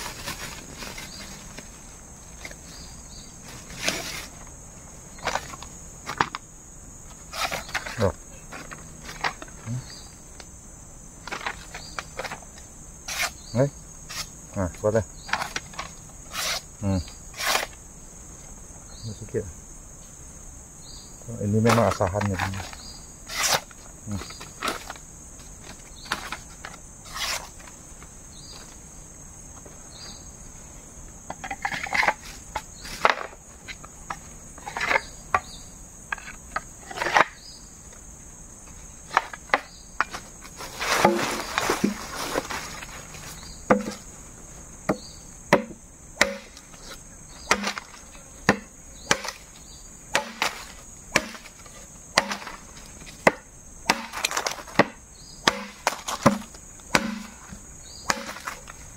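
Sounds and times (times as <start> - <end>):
insects buzzing: 0.0 - 58.9
machete chopping wood: 41.0 - 42.0, 43.7 - 44.0, 44.9 - 46.8, 47.4 - 49.5, 50.1 - 58.7.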